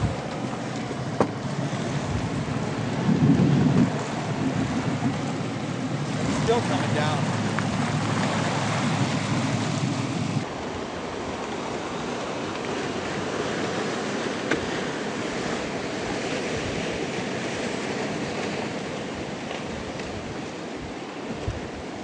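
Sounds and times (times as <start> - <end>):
lake water: 0.0 - 22.0
wind rushing: 2.0 - 5.1.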